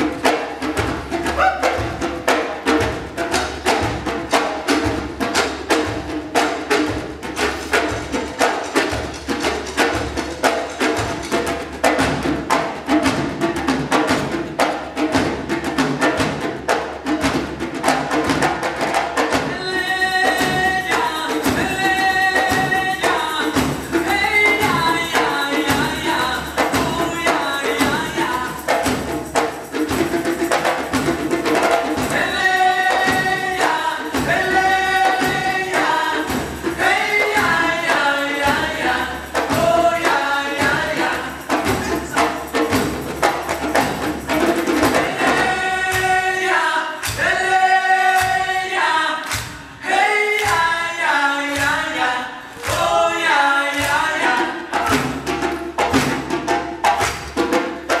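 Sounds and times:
drum kit: 0:00.0 - 0:48.6, 0:51.5 - 0:58.0
hand drums: 0:00.0 - 0:58.0
sharp drum strokes: 0:00.0 - 0:58.0
voices singing: 0:19.4 - 0:30.5, 0:31.6 - 0:55.6.

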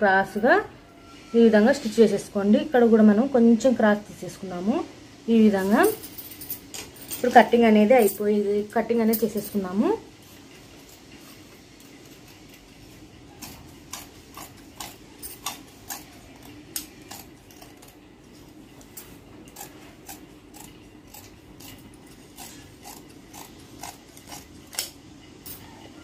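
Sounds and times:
scissors snipping cloth: 0:19.5 - 0:25.0.

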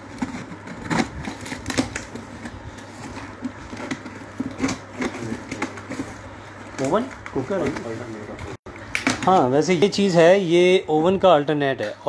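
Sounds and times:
cardboard crackling: 0:00.0 - 0:09.6.

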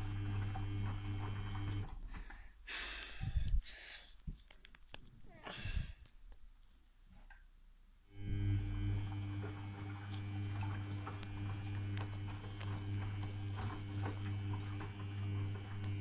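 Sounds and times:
washing machine motor hum: 0:00.0 - 0:02.5, 0:08.1 - 0:16.0
tumbling load clicks: 0:08.8 - 0:16.0.

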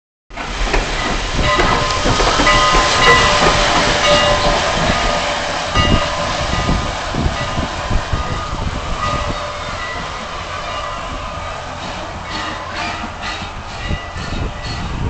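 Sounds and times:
rail clatter: 0:00.3 - 0:15.0
steam locomotive moving slowly: 0:00.3 - 0:15.0
steam hissing: 0:00.4 - 0:15.0.

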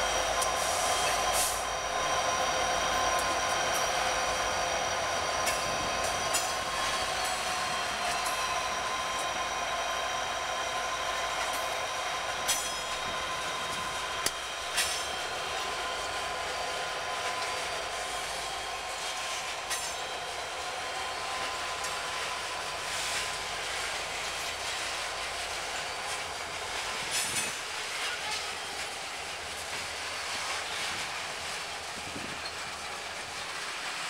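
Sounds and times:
train wheels rumbling on rail: 0:00.0 - 0:34.0
wheels clacking over rail joints: 0:02.3 - 0:09.4, 0:10.7 - 0:20.4.

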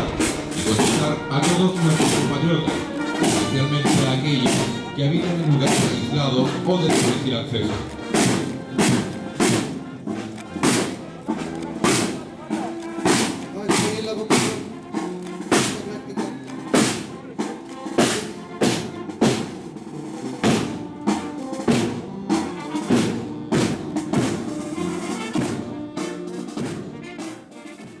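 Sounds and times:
marching band playing: 0:00.0 - 0:28.0
snare and bass drums: 0:00.0 - 0:28.0.

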